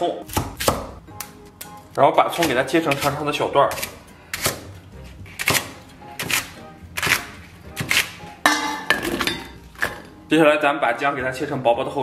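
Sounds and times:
cleaver chopping on wooden board: 0:05.3 - 0:08.2.

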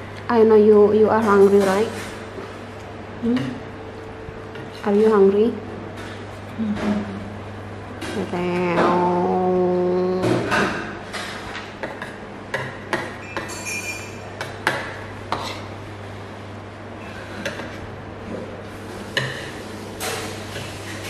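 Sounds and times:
steady low hum: 0:00.0 - 0:21.0
cutlery clinking on plates: 0:13.2 - 0:14.2.

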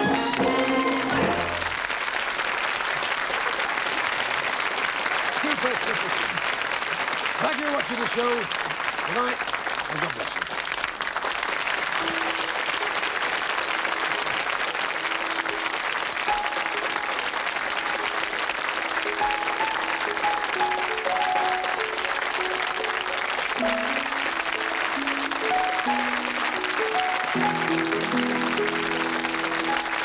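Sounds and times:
closing theme music: 0:00.0 - 0:02.1, 0:12.0 - 0:30.0
studio audience applauding: 0:00.0 - 0:30.0.

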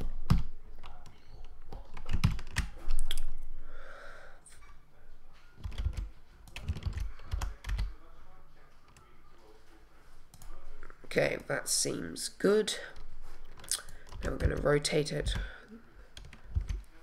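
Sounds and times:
keyboard keys clicking: 0:01.7 - 0:02.8, 0:05.6 - 0:07.9, 0:13.5 - 0:15.5, 0:16.2 - 0:16.8.

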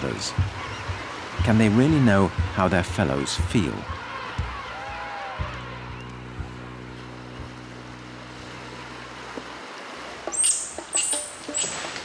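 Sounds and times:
low music drone with beat: 0:00.0 - 0:09.7
high sharp bird chirps: 0:10.4 - 0:11.8.

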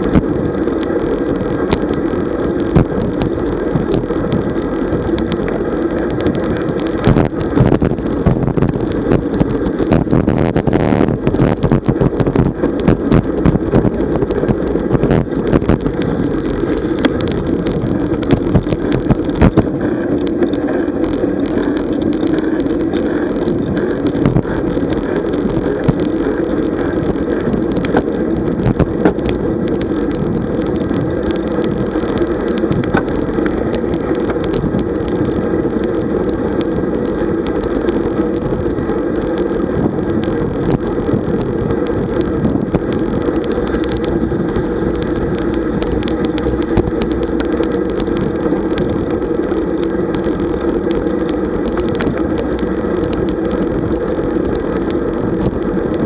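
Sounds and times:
road noise: 0:00.0 - 0:56.0
wind on microphone: 0:00.0 - 0:56.0.

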